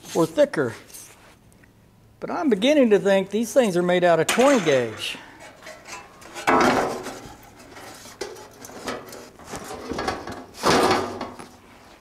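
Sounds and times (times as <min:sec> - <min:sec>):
sheet steel clattering and scraping: 0:04.3 - 0:11.5.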